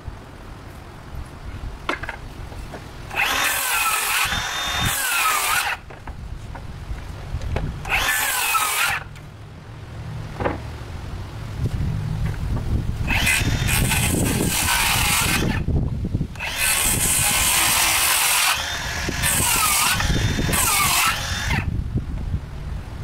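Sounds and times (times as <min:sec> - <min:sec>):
circular saw cutting wood: 0:03.1 - 0:05.9, 0:07.8 - 0:09.2, 0:13.0 - 0:15.7, 0:16.4 - 0:21.7.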